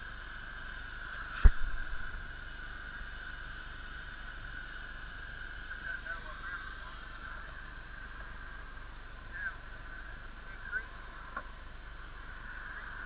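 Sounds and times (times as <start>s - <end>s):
cutting torch hissing: 0.0s - 13.0s
loud thump: 1.4s - 2.1s.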